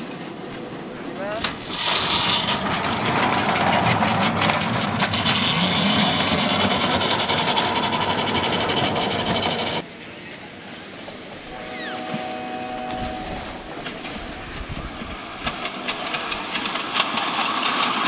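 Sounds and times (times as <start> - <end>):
wheels clicking over rail joints: 0.0 - 9.8, 13.7 - 18.0
miniature locomotive whirring: 1.3 - 9.8, 12.8 - 18.0.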